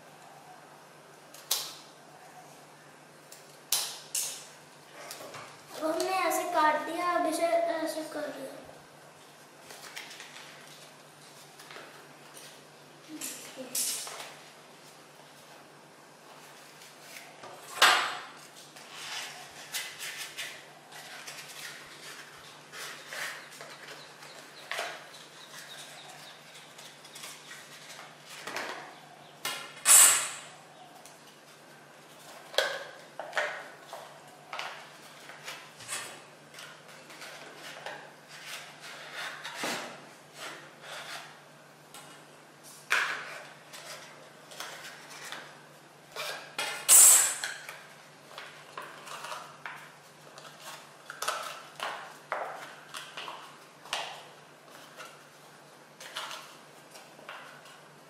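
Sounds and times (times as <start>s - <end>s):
paper rustling and crinkling: 9.5s - 12.7s.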